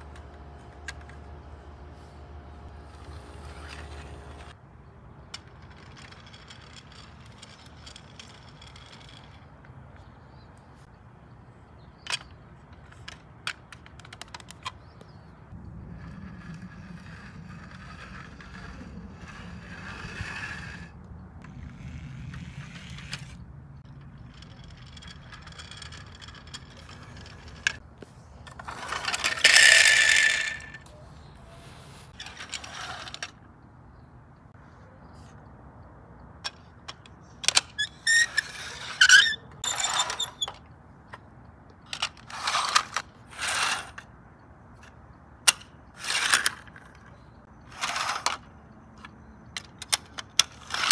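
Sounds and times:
plastic toy wheels rattling: 5.3s - 9.6s, 16.0s - 27.8s, 28.4s - 30.8s, 41.9s - 44.0s, 45.5s - 50.9s
plastic parts clicking: 47.8s - 50.9s.

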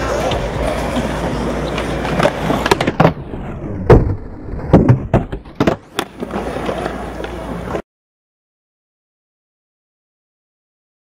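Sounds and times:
skateboard clacking and landing: 0.0s - 7.8s
skateboard wheels rolling on concrete: 0.0s - 7.8s.

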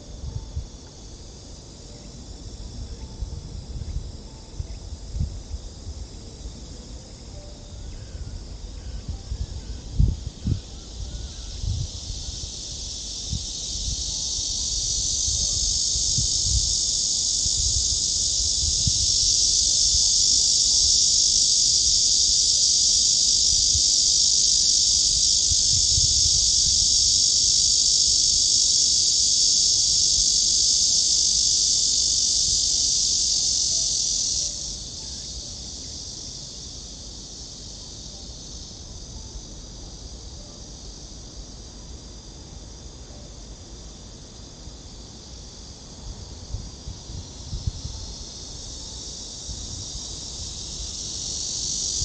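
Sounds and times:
wind rumble on microphone: 0.0s - 1.2s, 2.4s - 21.4s, 23.2s - 27.7s, 45.9s - 52.0s
cicadas buzzing: 0.0s - 52.0s.

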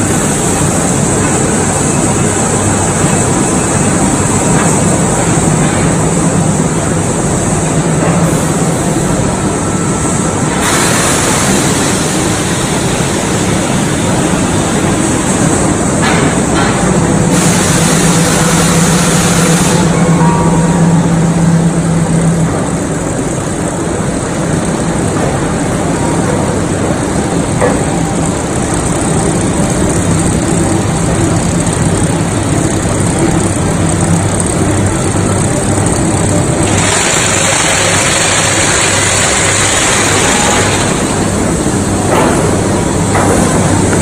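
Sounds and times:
low conveyor hum: 0.0s - 44.0s
rolling mill machinery din: 0.0s - 44.0s
hiss: 10.6s - 13.4s.

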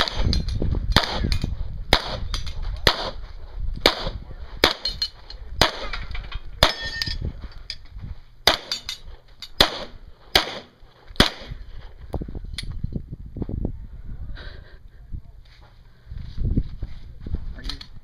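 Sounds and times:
pistol shots: 0.0s - 3.2s, 3.8s - 4.9s, 5.6s - 6.0s, 8.4s - 8.9s, 9.6s - 11.6s.

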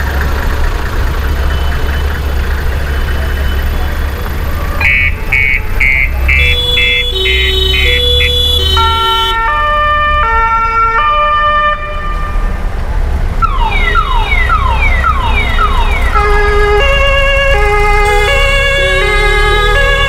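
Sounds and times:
vehicle engines running: 0.0s - 20.0s
two-tone sirens: 1.1s - 12.5s, 13.4s - 20.0s
siren falling wails: 13.4s - 20.0s.

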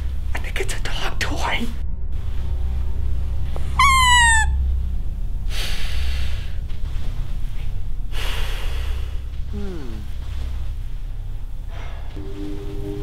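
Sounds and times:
low hum: 0.0s - 13.0s
high-pitched squawk: 3.7s - 4.6s
breathy hiss: 5.4s - 7.1s, 8.1s - 10.8s.

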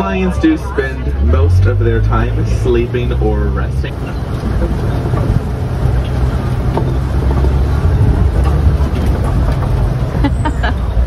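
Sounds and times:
road noise: 0.0s - 11.0s
truck engine rumbling: 0.0s - 11.0s.

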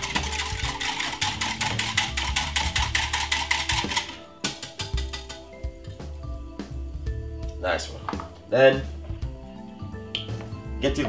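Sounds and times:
wire whisk clinking in glass jug: 0.0s - 5.4s
background music: 0.0s - 11.0s.

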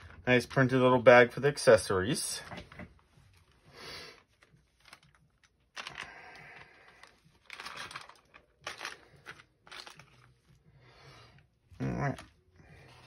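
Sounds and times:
cloth bag rustling: 6.9s - 10.6s.

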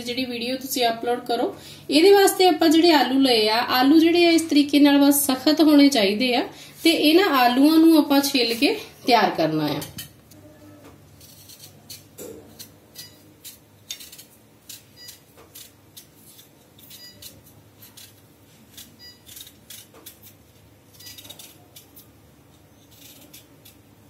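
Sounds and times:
peeler scraping potato skin: 11.1s - 23.9s.

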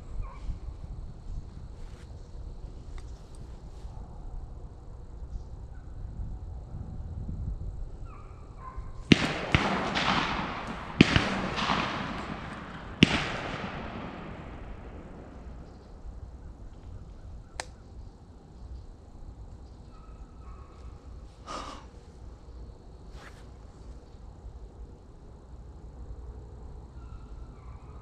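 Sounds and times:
gunshots echoing: 9.1s - 16.4s.

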